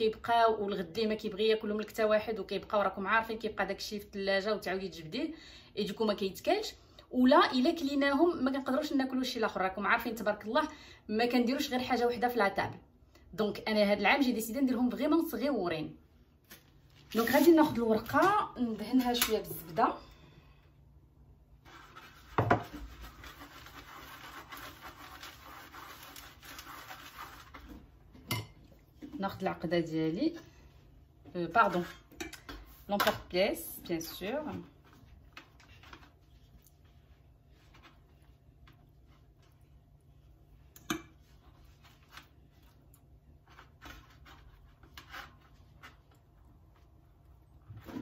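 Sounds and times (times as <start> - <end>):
pastry sheet rustling: 16.4 - 19.0, 21.5 - 27.9, 34.1 - 40.5, 41.2 - 48.0
pastry brush rubbing: 21.6 - 27.6.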